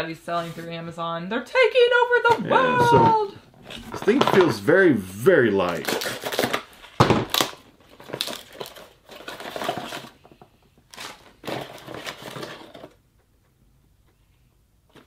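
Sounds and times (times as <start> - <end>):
plastic bag crinkling: 2.7 - 13.0.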